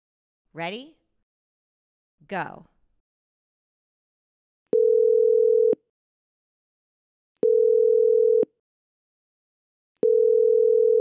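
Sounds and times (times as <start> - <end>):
low telephone beep: 4.8 - 5.8, 7.4 - 8.5, 10.0 - 11.0.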